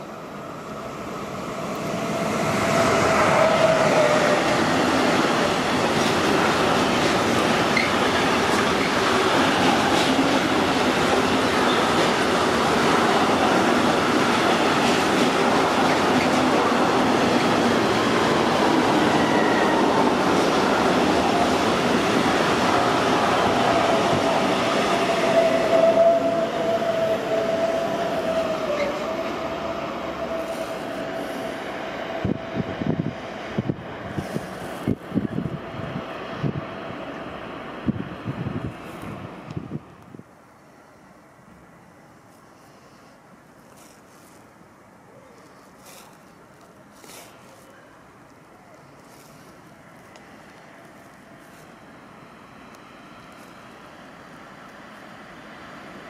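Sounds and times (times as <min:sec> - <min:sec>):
freight train wheels rumbling: 0:00.0 - 0:40.3.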